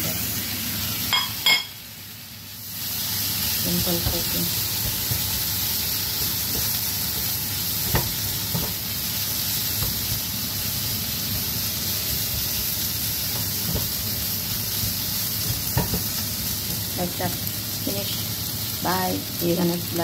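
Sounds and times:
food sizzling in a pan: 0:00.0 - 0:20.0.

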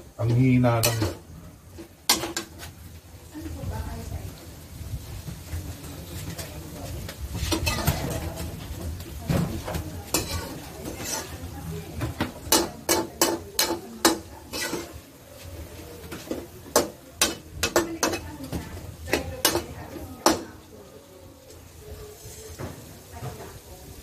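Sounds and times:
frying sizzle: 0:00.0 - 0:24.0
metal spatula clinking on wok: 0:12.5 - 0:15.0.

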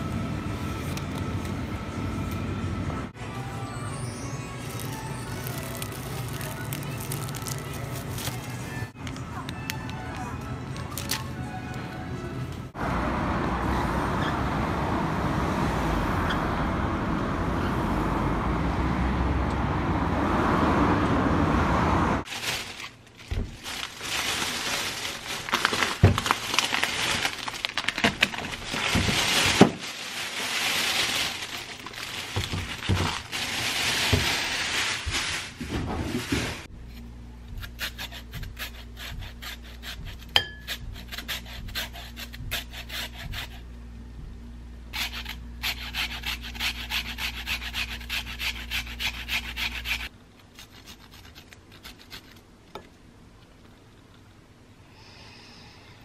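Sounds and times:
plastic bag rustling: 0:04.6 - 0:08.9, 0:22.3 - 0:36.7
carrot rasping on metal grater: 0:37.6 - 0:43.5, 0:45.0 - 0:52.4.

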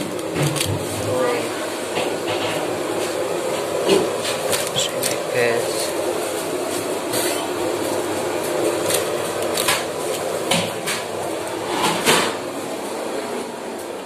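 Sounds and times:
steady background hum: 0:00.0 - 0:14.0
plastic boxes clicking and crackling: 0:03.9 - 0:05.2, 0:08.8 - 0:11.1.

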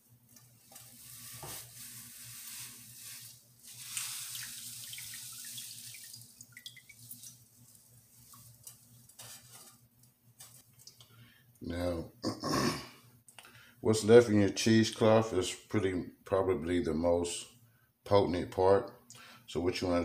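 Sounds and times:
faint steady hum: 0:00.0 - 0:20.0
oil trickling into saucepan: 0:00.7 - 0:09.6.

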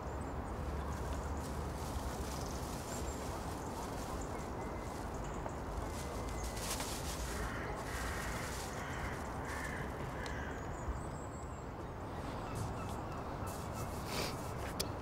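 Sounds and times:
outdoor background noise: 0:00.0 - 0:15.0
crow cawing: 0:07.3 - 0:10.6.

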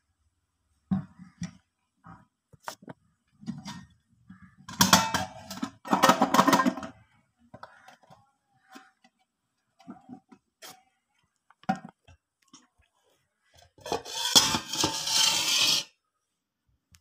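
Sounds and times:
metal bowl scraping steel plate: 0:04.7 - 0:07.0, 0:13.8 - 0:16.0.

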